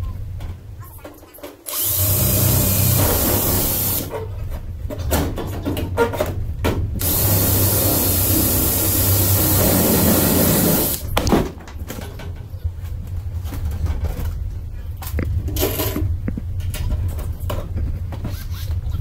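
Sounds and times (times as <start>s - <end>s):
cordless drill whirring: 1.7s - 4.1s, 7.0s - 11.1s.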